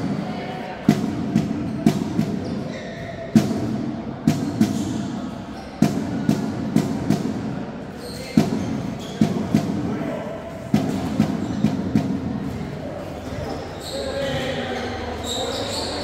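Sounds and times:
drum beats: 0.8 - 2.6, 3.3 - 5.2, 5.8 - 12.7.

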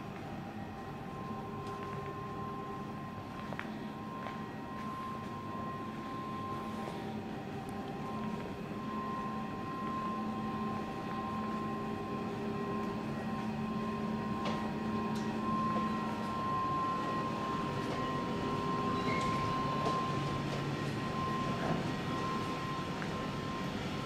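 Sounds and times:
constant high whine: 0.0 - 24.0
electrical equipment hum: 0.0 - 24.0.

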